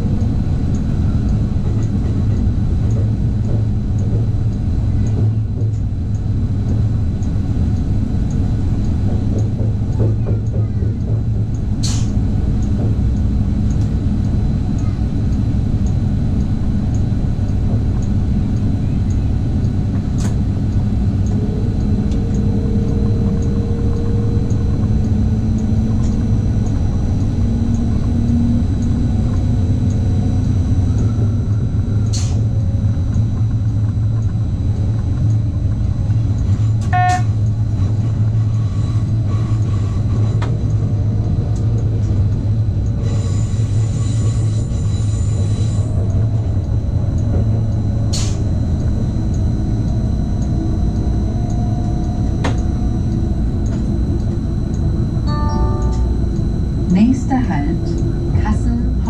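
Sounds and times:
train rumble: 0.0 - 59.0
faint drive tone: 45.8 - 59.0.

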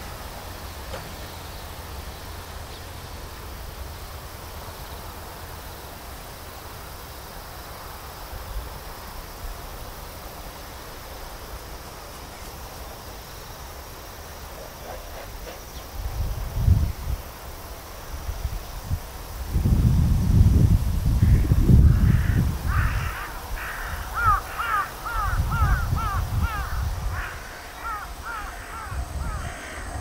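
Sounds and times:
insects chirring: 0.0 - 30.0.

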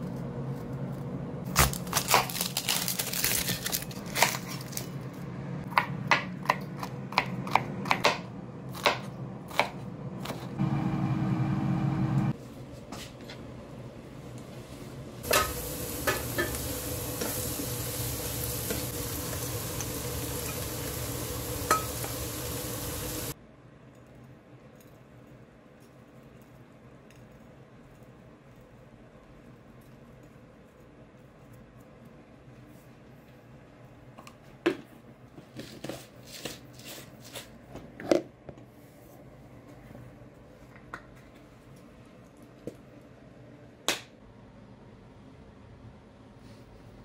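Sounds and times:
knife chopping on plastic board: 5.7 - 10.5
steady hum: 6.7 - 23.4
food sizzling in a frying pan: 15.2 - 23.4.

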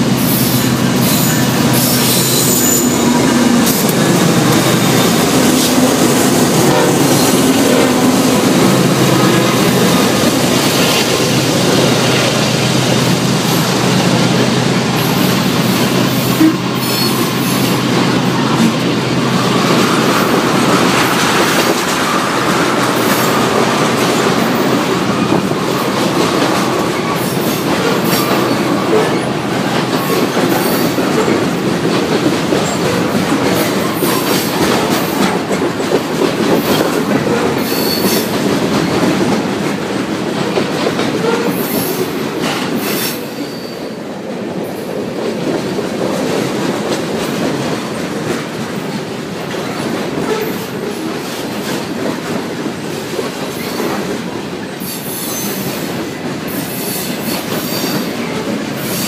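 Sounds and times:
freight train rumbling past: 0.0 - 59.0
wheels clacking over rail joints: 0.0 - 59.0.

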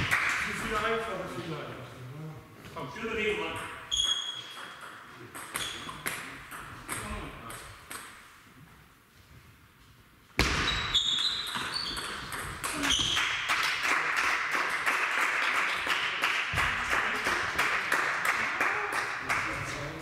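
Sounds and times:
crowd clapping and cheering: 0.0 - 0.6, 12.7 - 20.0.

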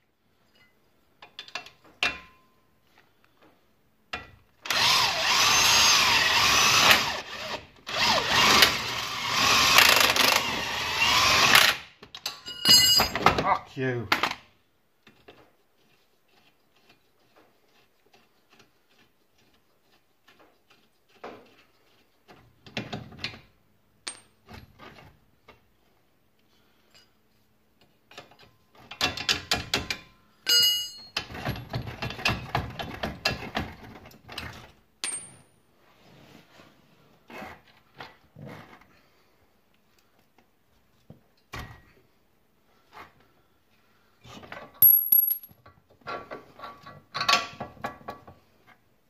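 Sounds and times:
metallic ring: 12.3 - 13.2, 30.4 - 31.2, 44.8 - 45.6.

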